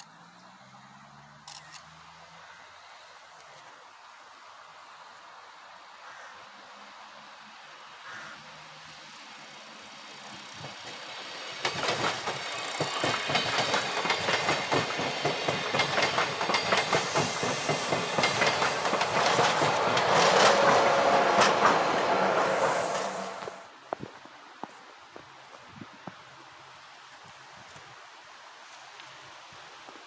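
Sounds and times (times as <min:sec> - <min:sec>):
train wheels clattering over rail joints: 0:10.3 - 0:23.6.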